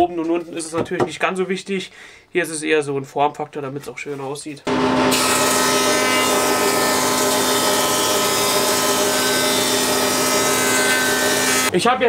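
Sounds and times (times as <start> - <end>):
thickness planer running: 4.7 - 11.7.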